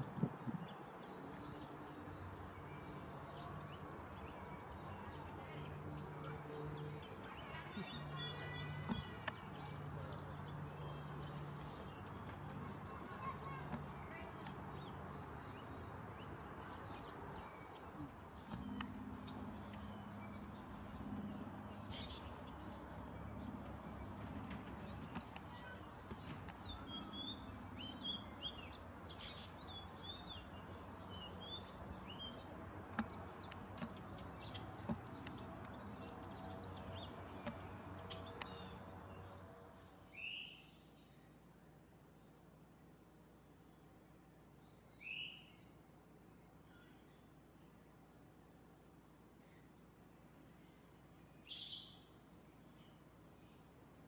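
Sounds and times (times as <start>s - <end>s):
birds chirping: 0.0s - 40.5s.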